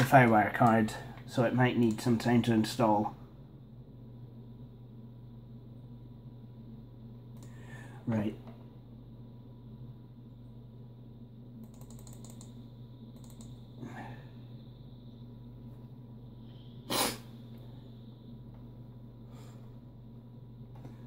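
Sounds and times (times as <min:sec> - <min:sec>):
computer humming: 0:00.0 - 0:21.0
keyboard clicks: 0:11.6 - 0:12.6, 0:13.2 - 0:13.6.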